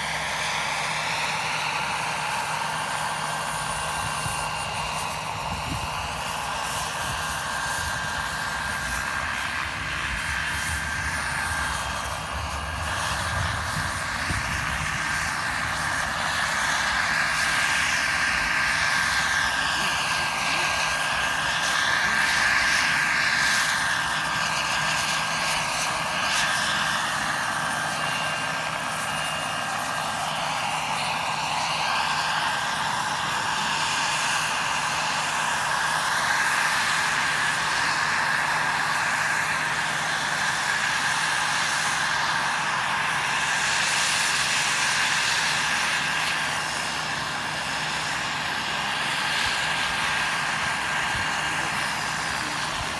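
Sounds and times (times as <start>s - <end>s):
model helicopter motor whine: 0.0s - 52.9s
rotor rushing noise: 7.0s - 22.4s.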